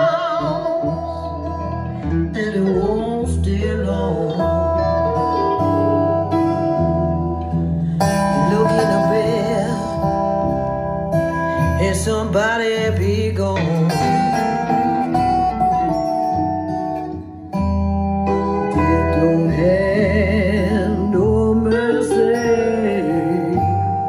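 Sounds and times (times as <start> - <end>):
person singing: 0.0 - 17.0, 18.3 - 24.0
guitar: 0.0 - 24.0
steady bass line: 0.0 - 24.0.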